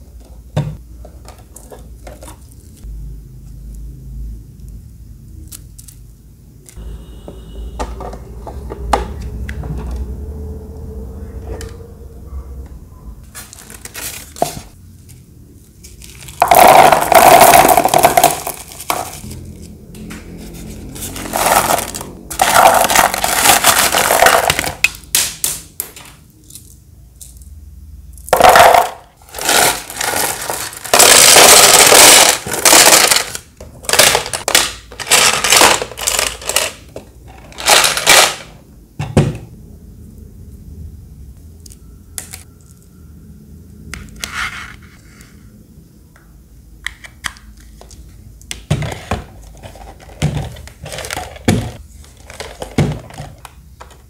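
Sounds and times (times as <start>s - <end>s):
handling of hard plastic parts: 13.3s - 19.3s, 20.6s - 27.4s, 28.3s - 38.5s, 46.8s - 54.0s
pebbles rattling into plastic tank: 16.0s - 19.3s, 21.1s - 24.9s, 28.3s - 38.5s, 48.7s - 54.0s.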